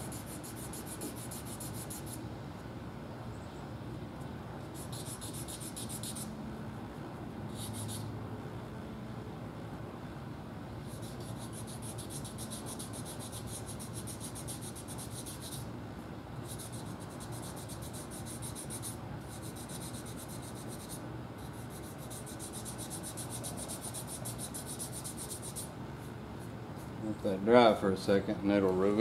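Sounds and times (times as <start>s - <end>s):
sanding block scratchy strokes: 0.0s - 2.2s, 4.7s - 6.3s, 10.9s - 15.6s, 16.5s - 25.7s.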